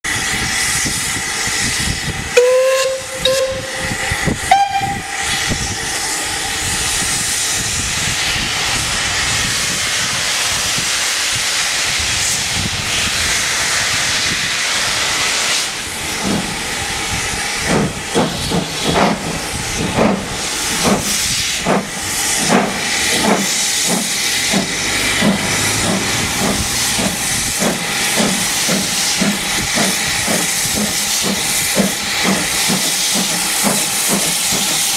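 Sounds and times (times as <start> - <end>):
steam hissing: 0.1 - 34.9
steam whistle blasts: 2.4 - 5.4
locomotive chuffing: 13.0 - 34.9.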